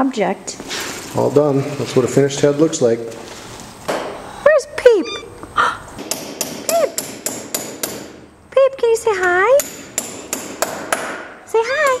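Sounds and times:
sharp knocks: 3.9 - 4.2, 6.0 - 8.2, 9.6 - 11.4
cat meowing: 4.9 - 5.4.

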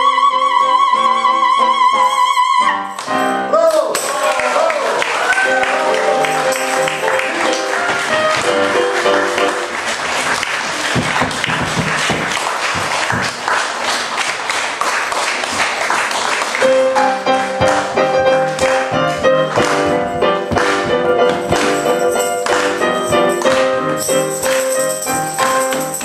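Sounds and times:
small audience clapping: 3.0 - 26.0
keyboard music: 5.2 - 10.1, 16.6 - 26.0.

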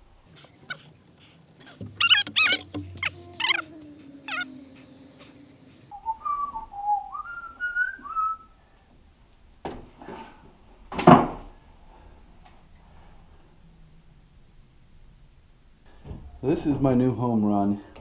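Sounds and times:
person whistling a tune: 5.9 - 8.5.

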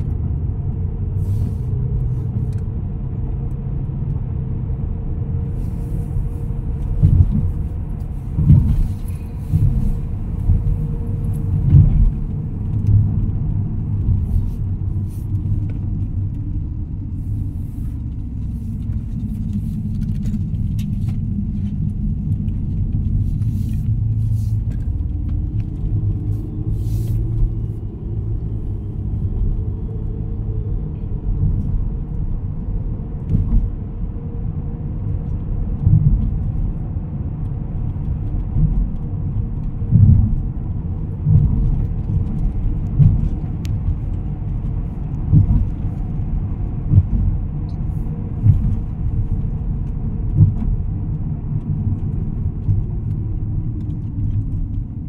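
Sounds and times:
car road and engine rumble: 0.0 - 55.0
low thumps: 6.8 - 16.9.

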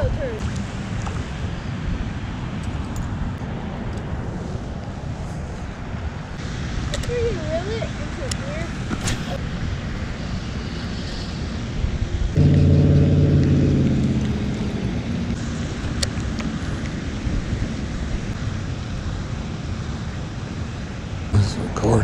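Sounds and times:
steady low rumble: 12.3 - 19.5
low engine drone: 12.3 - 19.7.

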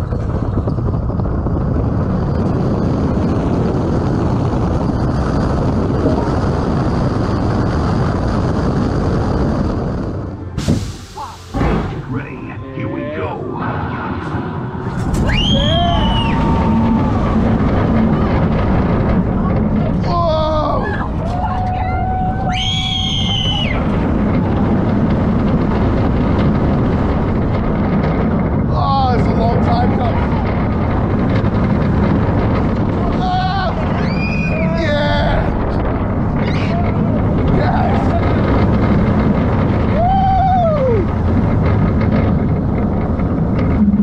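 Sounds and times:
wind rush and track rumble: 0.0 - 44.0
riders screaming: 15.2 - 17.6, 20.0 - 24.1, 33.0 - 35.7, 39.8 - 41.2.

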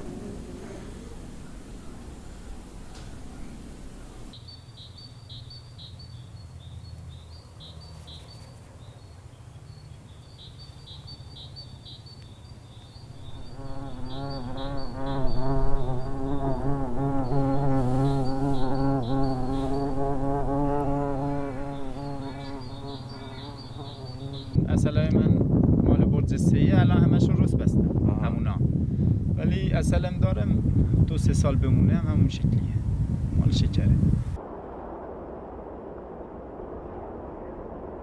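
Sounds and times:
bees buzzing: 13.1 - 24.6.

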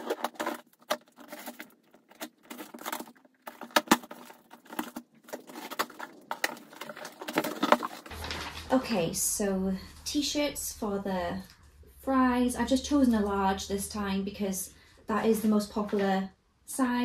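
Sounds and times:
tape tearing: 0.0 - 8.7
cardboard rustling: 0.0 - 9.2.

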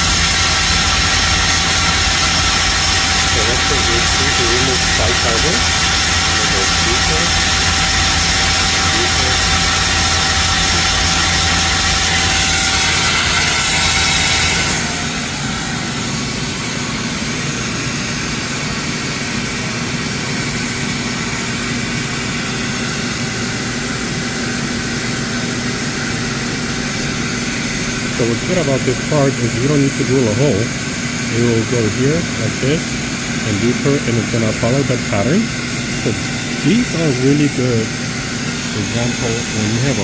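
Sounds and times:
lathe running: 0.0 - 40.0.

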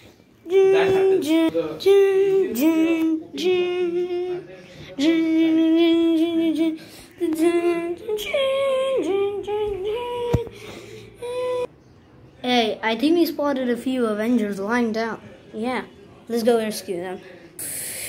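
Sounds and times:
child singing wordless tune: 0.4 - 4.4, 5.0 - 10.6, 11.2 - 11.7.

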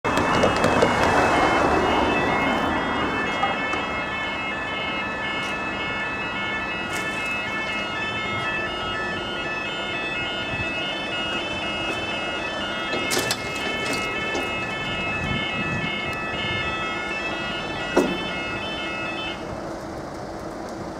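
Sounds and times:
road traffic noise: 0.0 - 20.9
level crossing alarm warbling: 0.1 - 19.5.

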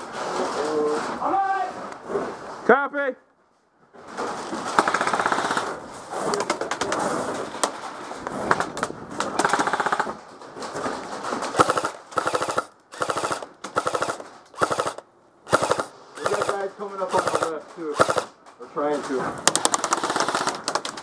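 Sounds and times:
airsoft rifles firing full-auto: 4.7 - 5.8, 9.4 - 10.2, 11.5 - 18.4, 19.4 - 21.0.

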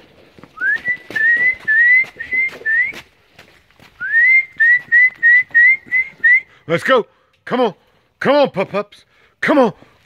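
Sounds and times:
person whistling: 0.6 - 3.1, 4.0 - 6.6.

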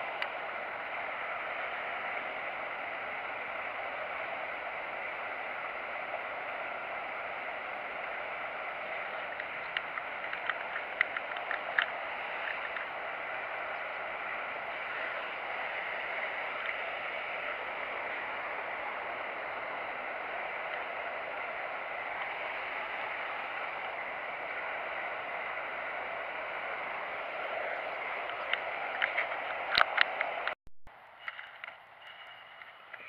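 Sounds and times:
steady outdoor hiss: 0.0 - 33.0
small sharp clicks: 9.3 - 12.9.

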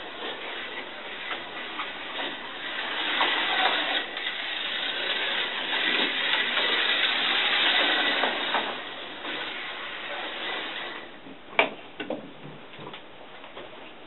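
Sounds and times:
slot car rattling on track: 0.0 - 11.1
slot car motor whirring: 0.0 - 11.2.

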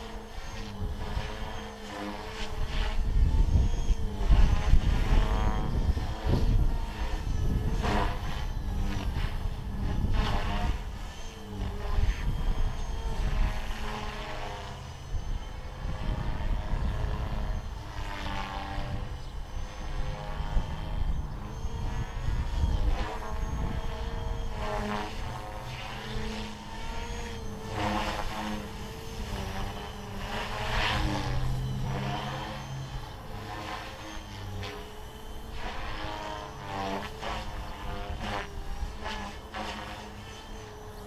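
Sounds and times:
rc helicopter rotor whine: 0.0 - 41.0.

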